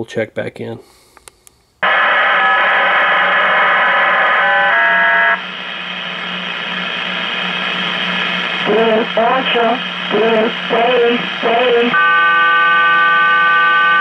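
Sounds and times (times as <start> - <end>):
radio static hiss: 1.8 - 12.0
low hum: 1.9 - 12.0.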